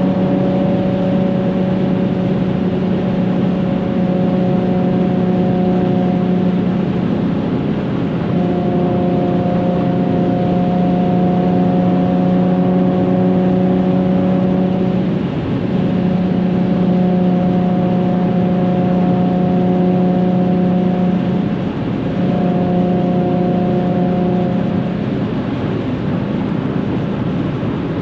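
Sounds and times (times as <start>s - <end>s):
car exhaust droning: 0.0s - 28.0s
road and wind noise: 0.0s - 28.0s.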